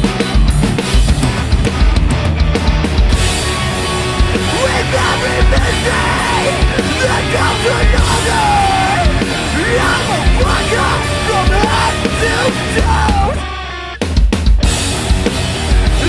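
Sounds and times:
drums: 0.0s - 16.0s
heavy guitars: 0.0s - 16.0s
person yelling vocals: 4.5s - 13.5s.

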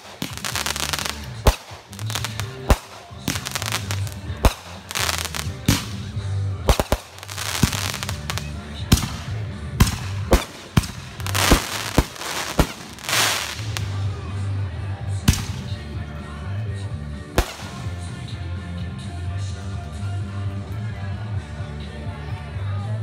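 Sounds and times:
firework hissing crackle: 0.0s - 6.1s, 6.7s - 9.2s, 9.8s - 14.0s
firework bangs: 0.0s - 14.1s, 17.4s - 18.0s.

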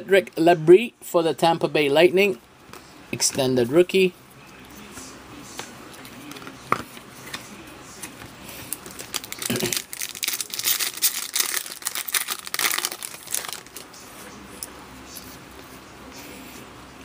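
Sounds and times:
foil wrapper tearing and crinkling: 8.7s - 13.9s.

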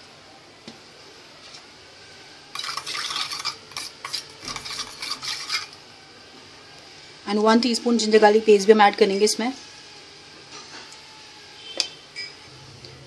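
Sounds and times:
spoon scraping and clinking bowl: 2.5s - 5.8s.

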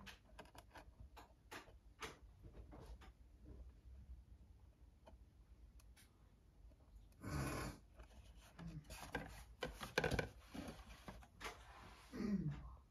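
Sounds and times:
cardboard scraping: 8.0s - 12.1s.

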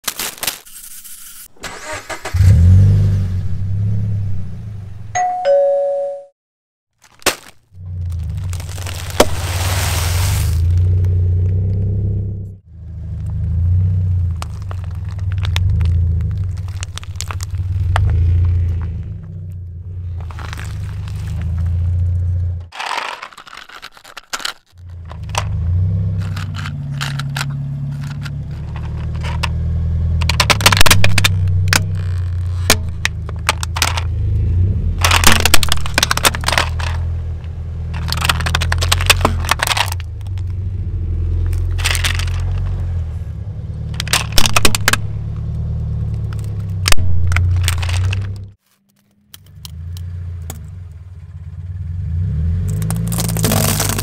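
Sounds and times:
tyre crushing objects: 7.0s - 11.0s, 14.2s - 19.3s, 20.0s - 21.9s, 35.0s - 37.2s, 37.9s - 40.5s, 46.1s - 48.6s, 52.6s - 54.0s
car engine running: 7.7s - 24.0s, 24.8s - 48.6s, 49.2s - 54.0s.

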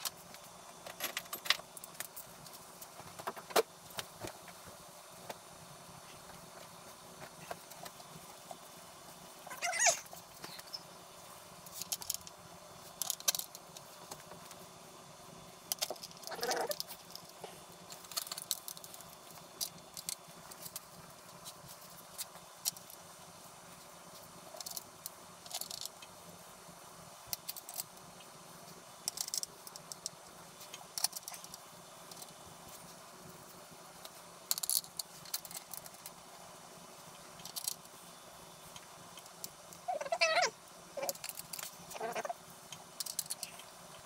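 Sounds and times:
metallic clicks of small parts: 0.0s - 2.9s, 11.7s - 14.6s, 15.7s - 23.1s, 24.6s - 26.2s, 27.3s - 28.4s, 29.0s - 32.4s, 34.0s - 36.2s, 37.2s - 37.9s, 41.0s - 44.0s.

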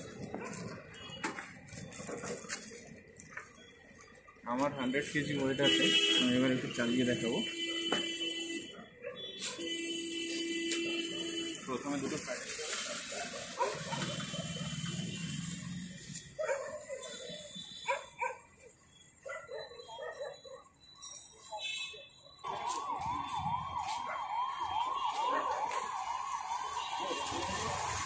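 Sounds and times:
electronic siren warble: 22.3s - 25.6s.

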